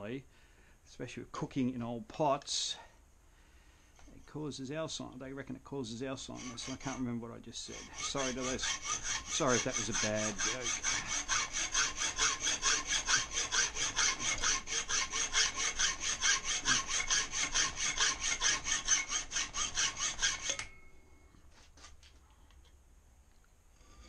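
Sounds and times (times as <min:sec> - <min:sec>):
hacksaw cutting aluminium: 0:06.2 - 0:20.8.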